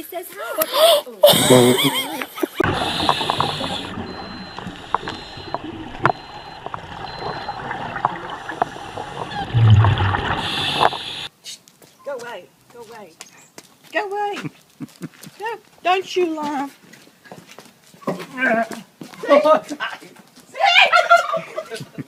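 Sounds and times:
muffled underwater hiss: 2.6 - 11.3
sharp underwater clicks: 2.7 - 11.3.

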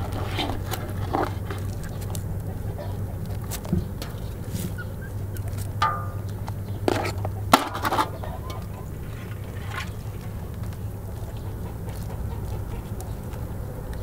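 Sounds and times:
crabs scraping metal basin: 0.0 - 2.5, 3.2 - 11.1
steady low hum: 0.0 - 14.0.

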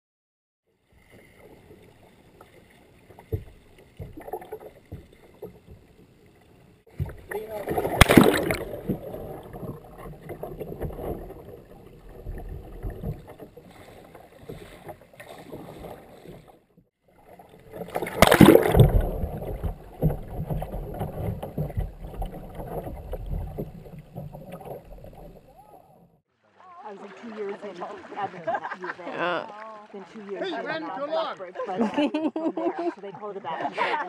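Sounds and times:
water splashing and rushing: 0.8 - 31.5
big water splash: 6.9 - 16.5, 17.2 - 25.4, 26.6 - 29.9.

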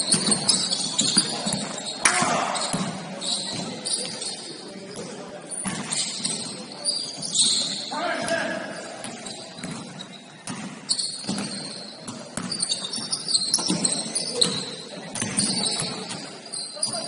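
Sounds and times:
basketball bouncing on gym floor: 0.0 - 4.2, 9.0 - 17.0
short high squeaks: 5.9 - 7.9, 10.9 - 11.9.

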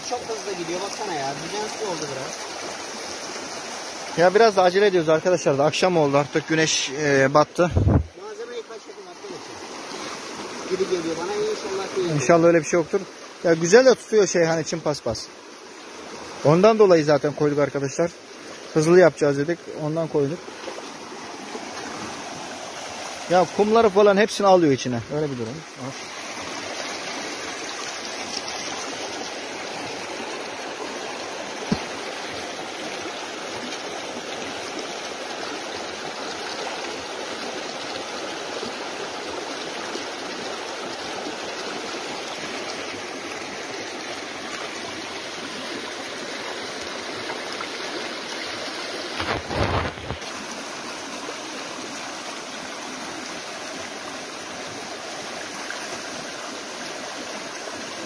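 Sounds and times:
creek water rushing: 0.0 - 58.0
sand and water poured: 49.1 - 50.3.

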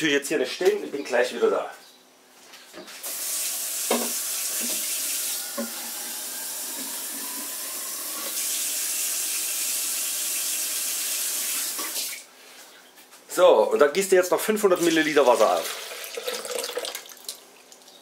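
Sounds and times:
water running from a tap: 3.0 - 12.2, 15.3 - 17.8.

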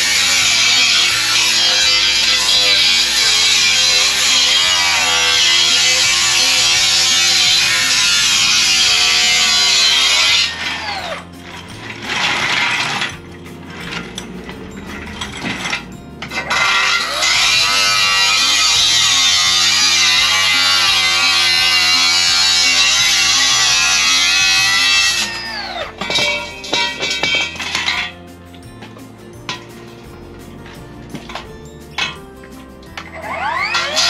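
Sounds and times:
music with bass and guitar: 0.0 - 34.0.

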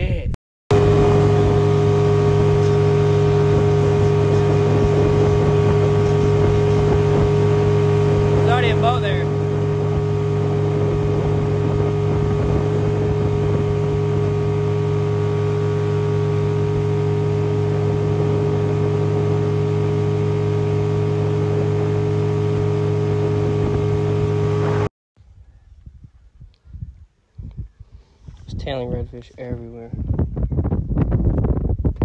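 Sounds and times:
outboard motor running: 0.7 - 24.9
water rushing off hull: 0.7 - 24.9.

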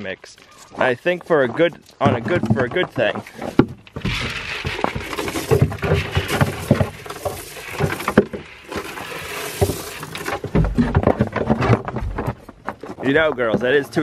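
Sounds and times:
goats knocking against boards: 0.8 - 8.9, 9.6 - 14.0
dry hay rustling: 4.1 - 10.4.

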